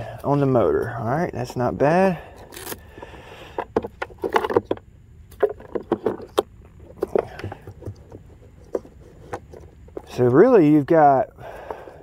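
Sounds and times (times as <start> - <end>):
clicks knocks and rattles of handling: 3.5 - 10.4.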